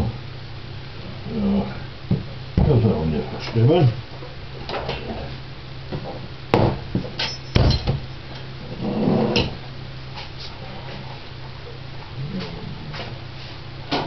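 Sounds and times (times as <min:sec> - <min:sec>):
steady low hum: 0:00.0 - 0:14.0
knocks on kitchen worktop: 0:06.5 - 0:06.8.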